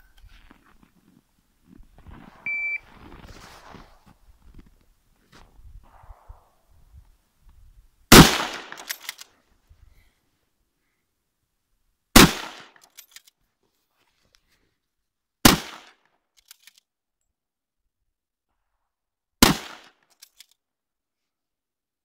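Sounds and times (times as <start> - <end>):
rifle shots: 8.1 - 9.1, 12.2 - 12.8, 15.4 - 15.9, 19.4 - 19.9.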